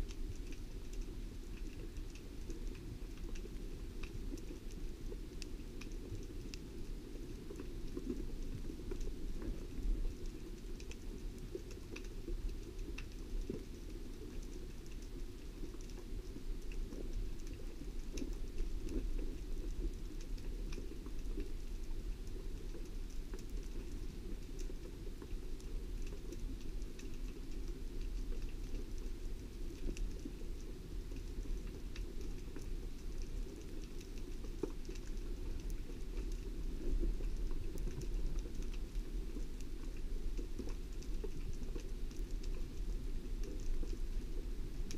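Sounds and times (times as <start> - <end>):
crackling clicks and ticks: 0.0 - 44.9
underwater low rumble: 0.0 - 44.9.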